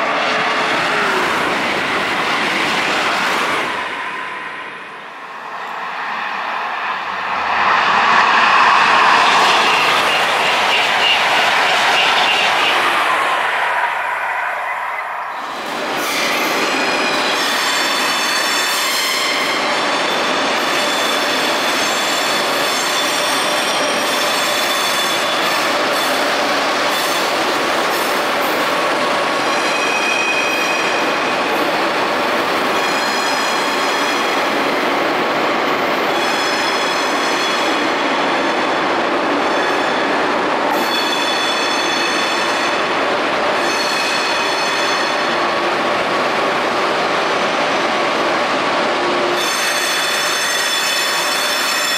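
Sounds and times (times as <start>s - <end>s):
rail rumble: 1.1s - 17.3s
train wheels squealing: 5.4s - 28.2s, 29.3s - 31.8s, 32.5s - 34.6s, 35.9s - 42.9s, 43.5s - 45.4s, 49.3s - 51.9s.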